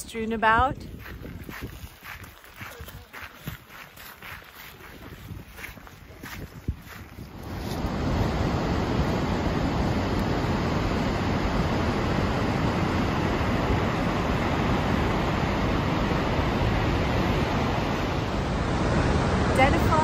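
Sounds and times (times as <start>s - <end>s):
waterfall roaring: 7.4s - 20.0s.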